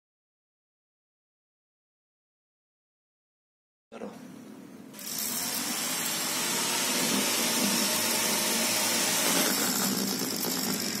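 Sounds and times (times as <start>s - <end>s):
small motors whirring: 5.0s - 11.0s.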